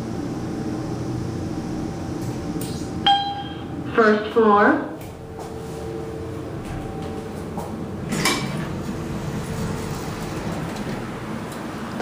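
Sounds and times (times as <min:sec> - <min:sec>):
elevator door operator hum: 0:00.0 - 0:12.0
elevator door clunk: 0:03.1 - 0:03.8, 0:05.0 - 0:12.0.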